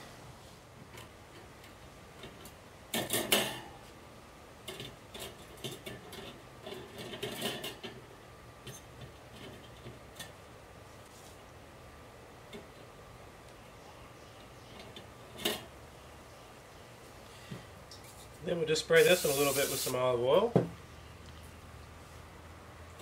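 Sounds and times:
metal wire racks clattering: 0:02.2 - 0:03.8, 0:04.6 - 0:10.4.

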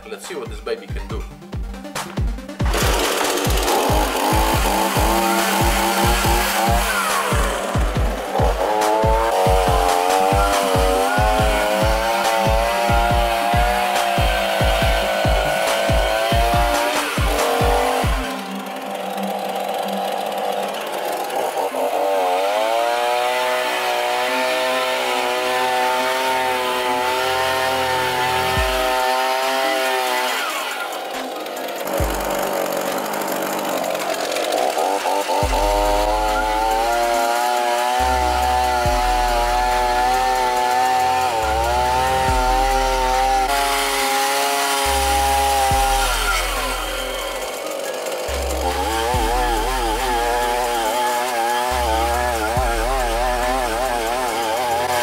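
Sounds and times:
music with deep bass line: 0:00.0 - 0:21.1, 0:27.5 - 0:29.8, 0:31.5 - 0:32.8, 0:35.0 - 0:55.0
chainsaw engine revving: 0:01.3 - 0:55.0
spinning brush scrubbing steel: 0:02.7 - 0:22.8.

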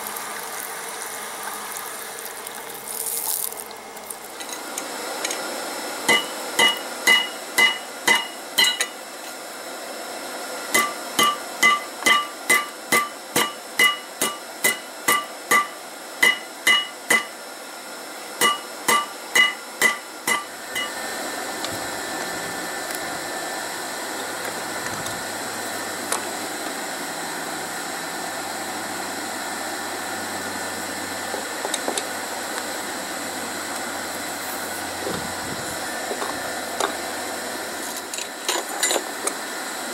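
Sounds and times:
hammer ringing on anvil: 0:06.1 - 0:09.0, 0:10.8 - 0:17.3, 0:18.4 - 0:20.9.

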